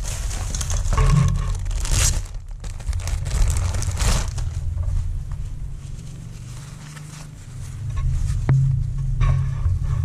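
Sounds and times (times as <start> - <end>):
plastic bag crinkling: 0.0 - 4.8
steady low hum: 0.0 - 10.0.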